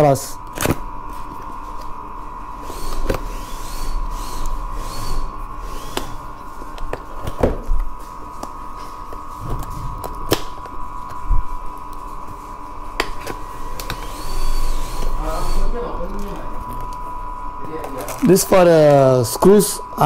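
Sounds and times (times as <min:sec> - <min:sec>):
steady high-pitched whine: 0:00.0 - 0:20.0.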